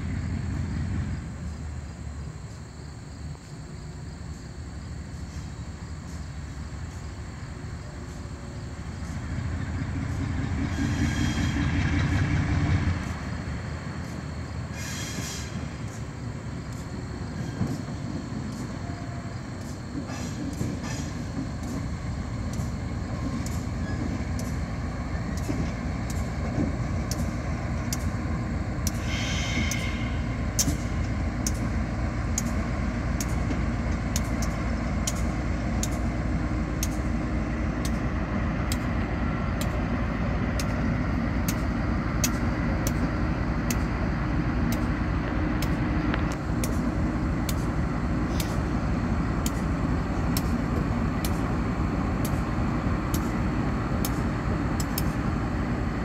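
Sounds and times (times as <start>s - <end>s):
diesel locomotive engine rumbling: 0.0s - 56.0s
sharp clicks: 33.2s - 36.1s, 36.8s - 37.2s, 41.4s - 43.9s, 45.6s - 48.7s, 54.0s - 55.2s.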